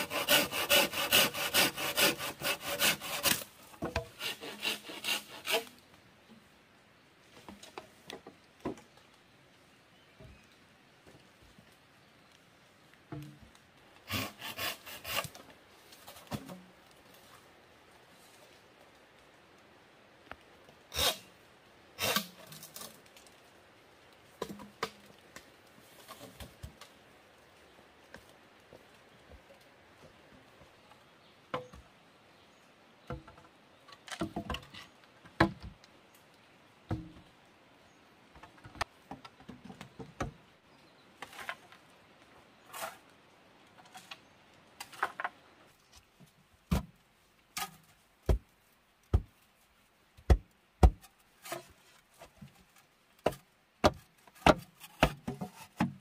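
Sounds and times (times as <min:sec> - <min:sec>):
bamboo poles knocking: 0:49.1 - 0:49.4, 0:50.2 - 0:51.7, 0:53.2 - 0:56.0.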